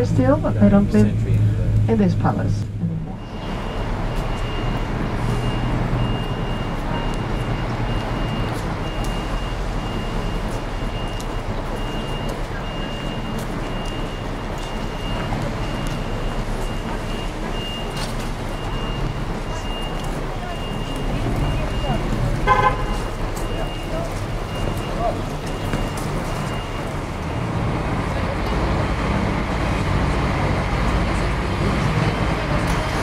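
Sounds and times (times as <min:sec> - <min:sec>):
coach engine and road noise: 0:00.0 - 0:33.0
high electronic beep: 0:03.0 - 0:20.0.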